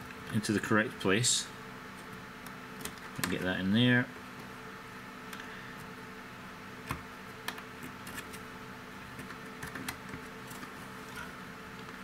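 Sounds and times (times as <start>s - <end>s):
circuit boards clicking together: 2.0s - 3.5s, 9.2s - 10.7s.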